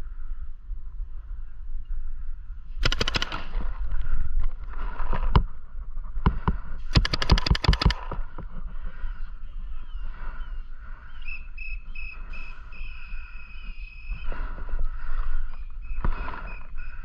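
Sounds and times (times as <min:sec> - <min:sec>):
paintball markers firing: 0:02.8 - 0:03.8, 0:06.5 - 0:08.3.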